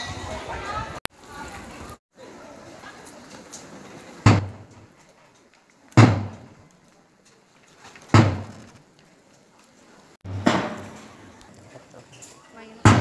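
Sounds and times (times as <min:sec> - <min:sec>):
loud booming thuds: 0:04.2 - 0:04.7, 0:06.0 - 0:06.5, 0:08.1 - 0:08.7, 0:10.2 - 0:11.1.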